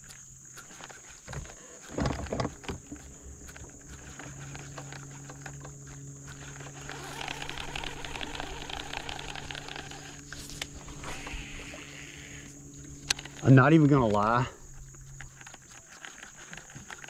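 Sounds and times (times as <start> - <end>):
fishing reel ticking: 0.0 - 17.0
steady low hum: 0.0 - 17.0.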